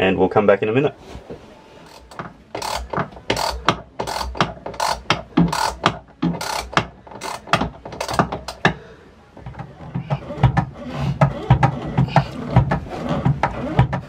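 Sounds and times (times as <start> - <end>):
hand pump mechanical clacks: 1.8 - 8.8.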